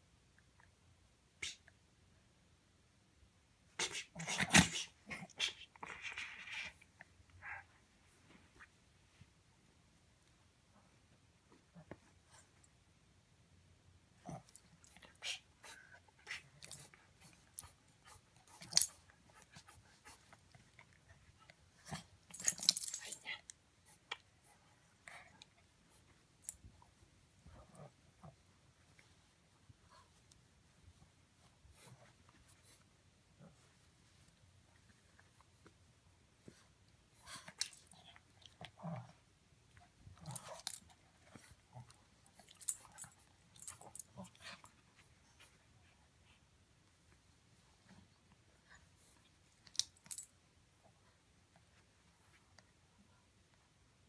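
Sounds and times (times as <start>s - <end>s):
puppy making short noises: 3.8s - 6.7s.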